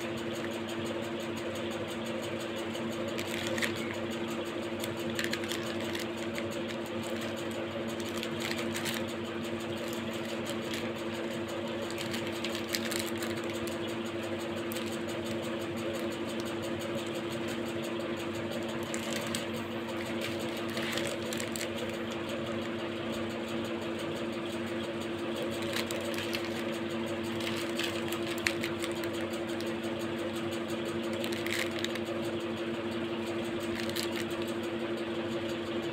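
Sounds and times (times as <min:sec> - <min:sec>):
steady machine hum: 0:00.0 - 0:35.9
plastic wrappers crinkling: 0:03.1 - 0:04.0, 0:04.8 - 0:13.9, 0:14.5 - 0:16.7, 0:18.7 - 0:22.2, 0:25.4 - 0:29.8, 0:31.0 - 0:32.1, 0:33.6 - 0:34.5.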